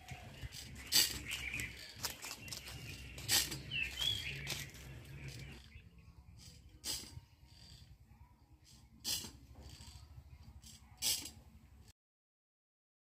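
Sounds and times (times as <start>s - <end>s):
small birds chirping: 0.0s - 9.0s.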